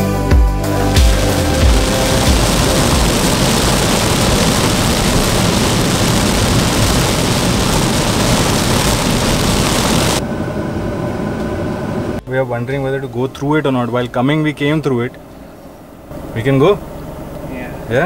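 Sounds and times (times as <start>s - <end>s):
steady car hum: 0.6s - 18.0s
car driving through rain spray: 1.0s - 10.2s.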